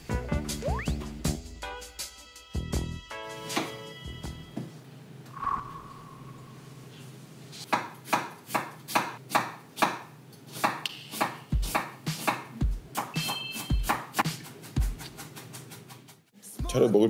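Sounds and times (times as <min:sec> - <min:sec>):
knife slicing onion on board: 0:07.6 - 0:15.4.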